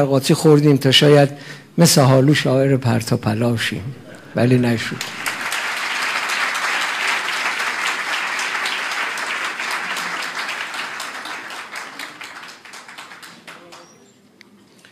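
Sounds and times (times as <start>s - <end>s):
audience applauding: 4.1s - 14.2s.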